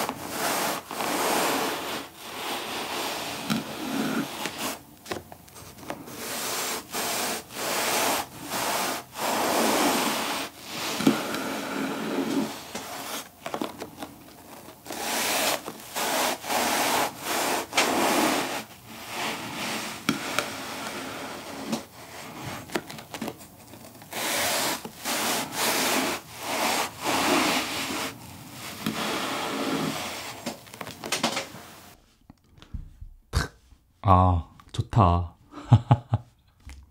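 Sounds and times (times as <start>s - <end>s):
knife sawing on cutting board: 0.0s - 4.8s, 6.1s - 13.3s, 14.9s - 22.6s, 24.1s - 30.4s.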